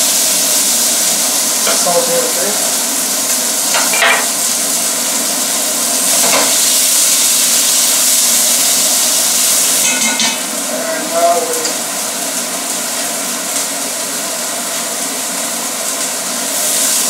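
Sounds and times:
onion and garlic sizzling: 0.0s - 17.0s.

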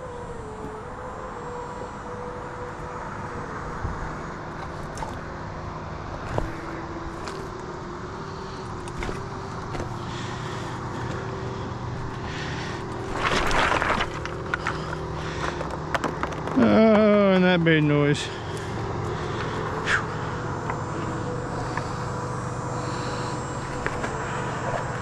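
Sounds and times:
steady engine drone: 0.0s - 25.0s
boots stepping on loose rock: 8.9s - 10.0s, 13.0s - 17.4s
crunching scrape of boot: 12.0s - 15.6s.

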